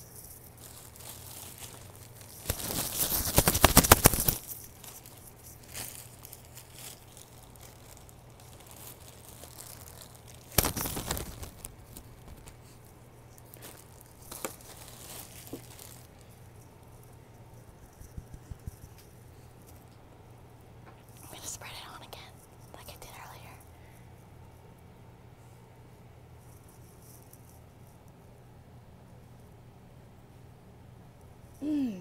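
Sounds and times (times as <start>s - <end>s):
plastic bag crinkling: 0.0s - 19.8s.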